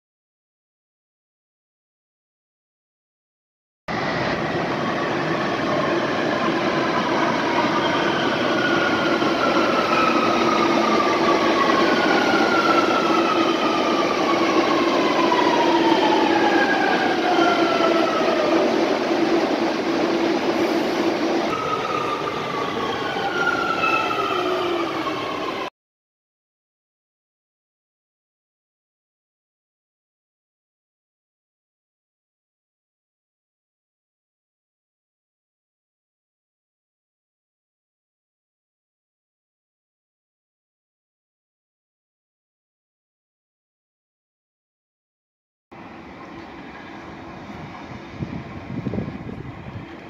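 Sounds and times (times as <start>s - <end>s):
electric train rumbling: 3.9s - 25.7s, 45.7s - 50.0s
train whines gliding down: 3.9s - 25.7s, 45.7s - 50.0s.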